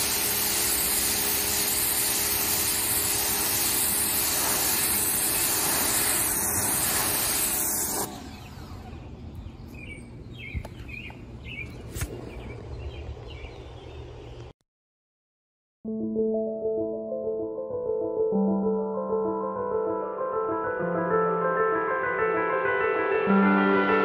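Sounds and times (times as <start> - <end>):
pressure washer spraying water: 0.0 - 8.8
birds chirping: 8.2 - 14.5.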